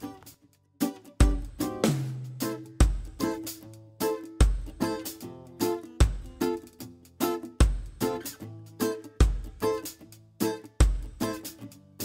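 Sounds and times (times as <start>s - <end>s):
plucked strings: 0.0s - 12.0s
deep beat: 1.2s - 8.6s, 9.2s - 10.1s, 10.7s - 11.6s.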